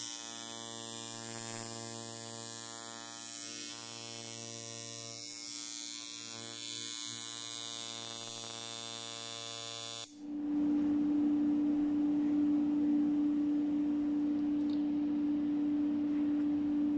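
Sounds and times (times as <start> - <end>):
tattoo machine buzzing: 0.0 - 10.2
steady tonal hum: 10.1 - 16.9.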